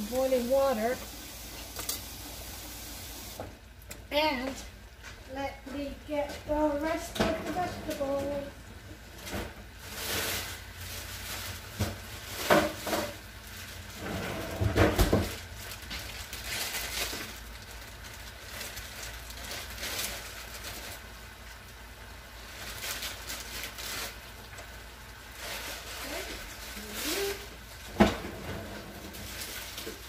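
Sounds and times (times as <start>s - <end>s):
kitchen items knocking and clattering: 11.5s - 13.3s, 14.0s - 16.1s, 27.9s - 30.0s.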